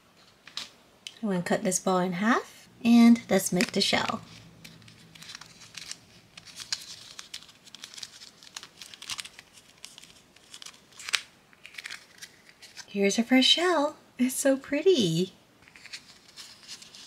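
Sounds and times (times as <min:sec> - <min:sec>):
plastic mold crinkling: 0:03.2 - 0:13.0.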